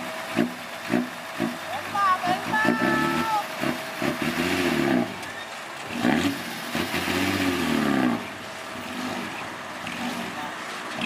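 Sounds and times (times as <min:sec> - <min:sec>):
diesel truck engine revving: 0:00.0 - 0:11.0.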